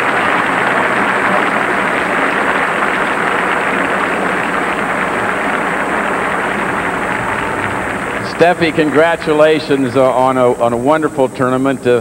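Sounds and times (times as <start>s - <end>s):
stadium crowd applauding: 0.0s - 12.0s.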